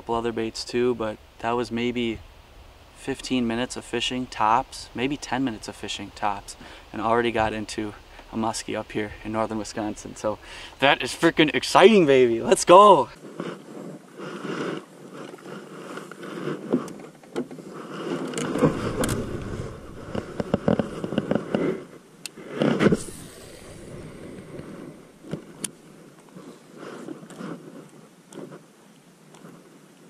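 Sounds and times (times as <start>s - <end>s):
fishing gear handled in kayak: 13.2s - 30.0s
fishing rod cast with hiss: 18.1s - 27.8s.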